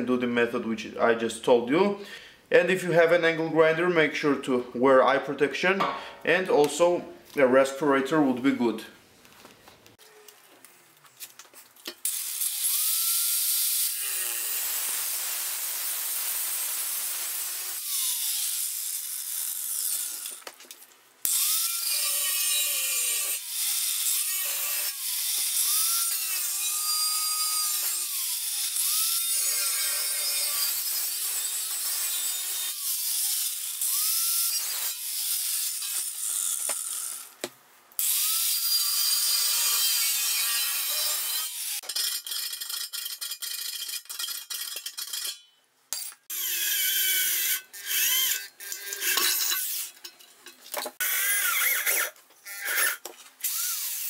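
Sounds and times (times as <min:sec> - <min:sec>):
angle grinder cutting metal: 0:12.0 - 0:20.5, 0:21.2 - 0:37.4, 0:38.0 - 0:54.0.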